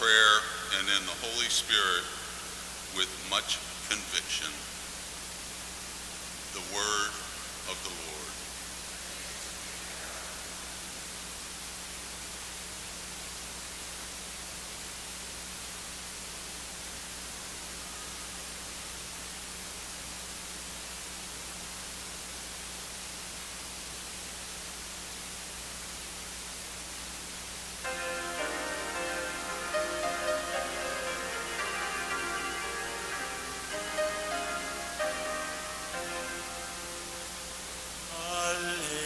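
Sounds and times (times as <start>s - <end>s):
low electrical hum: 0.0s - 39.0s
steady hiss: 0.0s - 39.0s
instrumental music: 27.8s - 38.1s.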